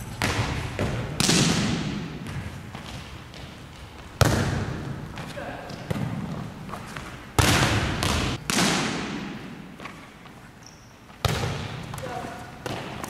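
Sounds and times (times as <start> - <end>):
volleyball smacks in gym: 0.1 - 2.6, 4.2 - 6.4, 7.0 - 10.0, 11.2 - 13.0.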